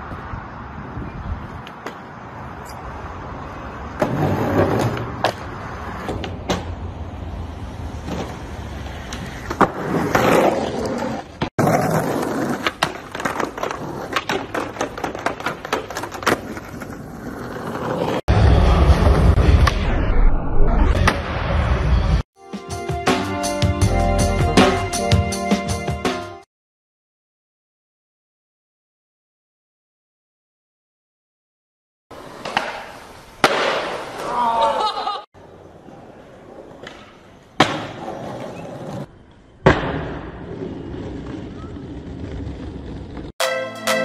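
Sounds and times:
wheels rumbling on concrete: 0:00.0 - 0:19.7, 0:32.1 - 0:43.4
skateboard wheels rolling: 0:00.0 - 0:19.8, 0:32.1 - 0:43.4
skateboard clacks and slaps: 0:04.0 - 0:06.8, 0:08.0 - 0:18.2, 0:32.2 - 0:34.5, 0:35.9 - 0:43.3.

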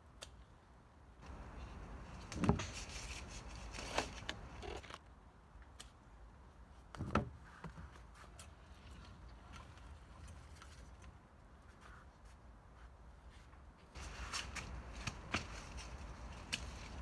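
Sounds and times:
rustling plants: 0:01.2 - 0:05.0, 0:07.4 - 0:17.0.

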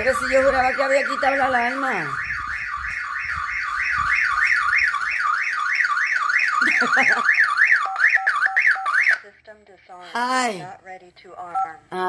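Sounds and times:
warbling alarm siren: 0:00.0 - 0:09.2.

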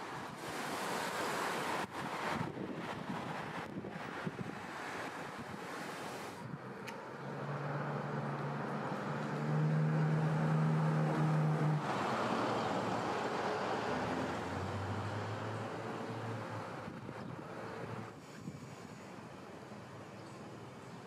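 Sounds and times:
vehicle engine hum: 0:00.0 - 0:21.0
wind and road noise: 0:00.0 - 0:21.0
lower engine hum: 0:06.4 - 0:20.8.

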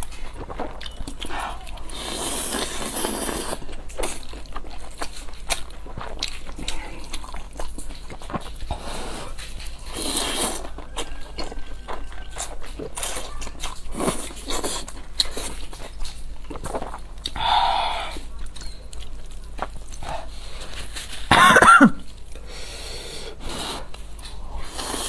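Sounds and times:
noodles slurped and chewed: 0:00.0 - 0:21.3, 0:23.2 - 0:25.0.

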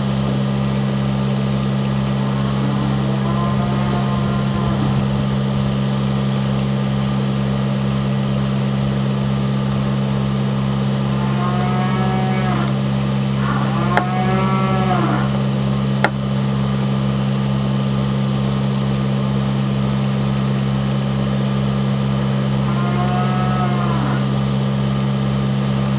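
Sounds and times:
mechanical drone with low throb: 0:00.0 - 0:17.8
drawn-out rising and falling calls: 0:01.2 - 0:06.5.

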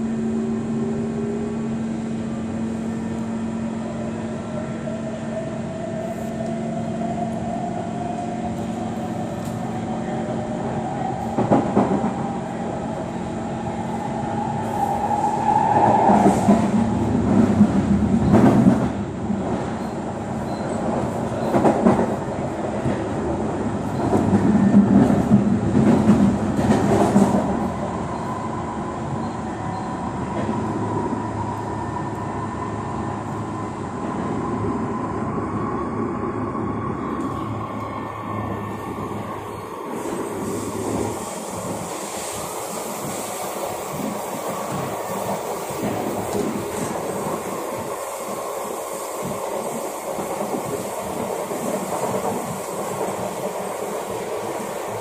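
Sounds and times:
wheel-on-rail rumble and clatter: 0:14.8 - 0:28.3, 0:40.0 - 0:48.0.

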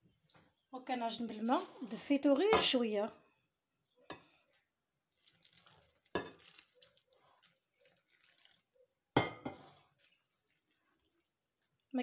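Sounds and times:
water trickling into flour: 0:03.9 - 0:12.0.

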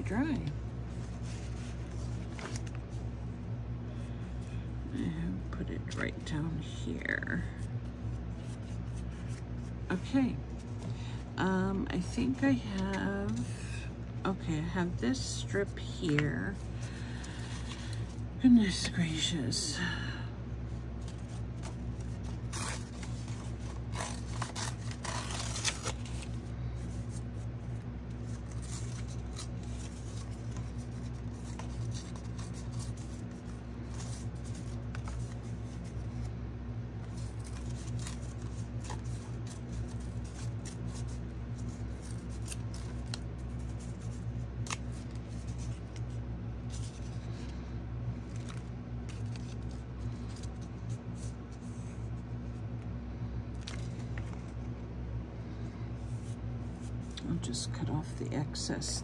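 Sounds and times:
steady low hum: 0:00.0 - 0:59.0
paper rustling and scraping: 0:00.9 - 0:03.1, 0:07.6 - 0:11.0, 0:21.0 - 0:36.3, 0:37.0 - 0:47.6, 0:48.2 - 0:52.6.

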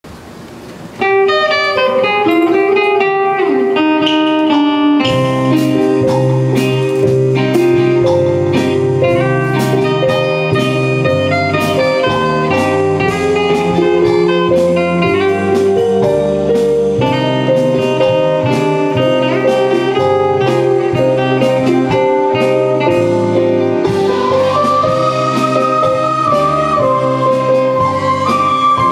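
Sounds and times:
orchestra and band playing: 0:01.0 - 0:28.9
picked melody: 0:01.0 - 0:28.9
bass line: 0:05.0 - 0:28.9.

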